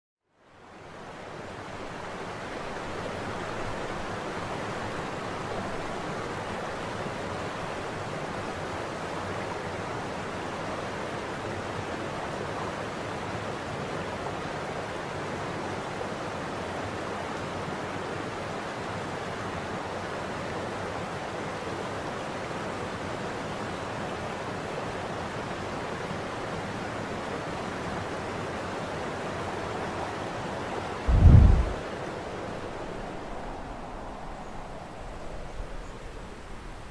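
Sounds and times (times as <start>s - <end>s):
deep thump: 31.1s - 31.8s.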